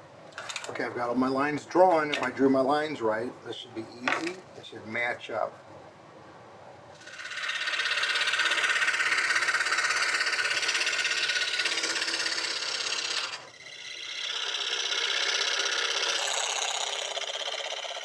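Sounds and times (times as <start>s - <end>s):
scroll saw cutting wood: 7.0s - 18.0s.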